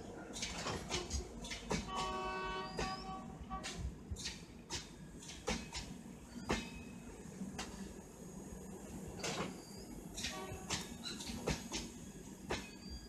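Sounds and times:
train rumbling past: 0:00.0 - 0:13.0
wheels clacking over rail joints: 0:00.3 - 0:06.8, 0:09.2 - 0:12.9.

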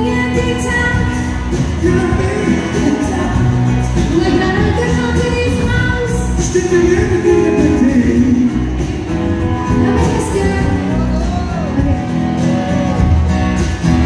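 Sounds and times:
person singing: 0:00.0 - 0:08.8, 0:09.6 - 0:13.0
live country band playing: 0:00.0 - 0:14.0.

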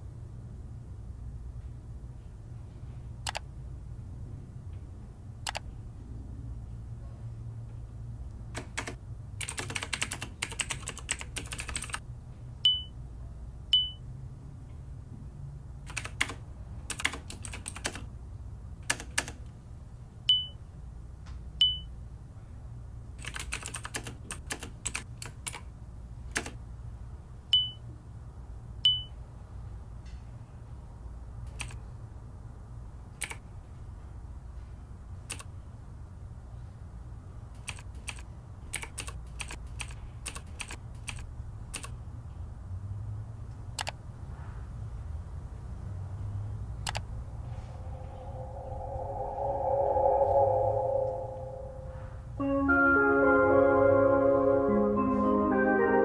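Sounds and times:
typing on keyboard: 0:08.6 - 0:12.0, 0:15.9 - 0:18.1, 0:18.8 - 0:19.4, 0:23.2 - 0:25.6, 0:33.2 - 0:33.4, 0:35.3 - 0:35.5, 0:37.6 - 0:42.0
steady low hum: 0:46.6 - 0:52.4.

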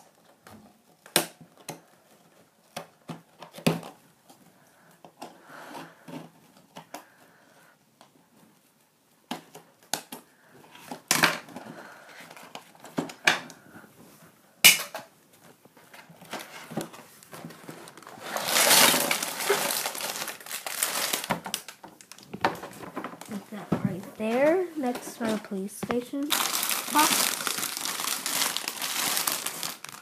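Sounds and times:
plastic bags crinkling: 0:16.1 - 0:30.0.

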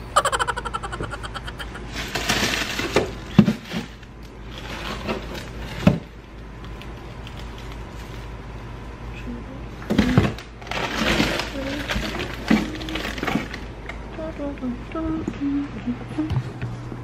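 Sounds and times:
steady low hum: 0:00.0 - 0:02.2.

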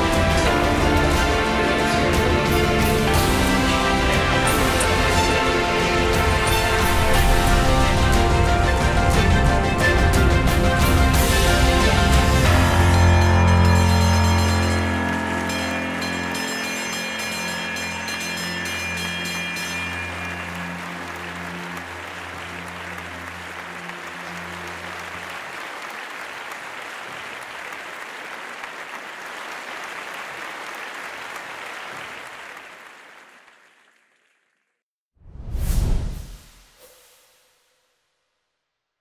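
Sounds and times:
background music: 0:00.0 - 0:26.0
crowd applauding: 0:00.0 - 0:34.4
bell ringing: 0:11.2 - 0:22.6.

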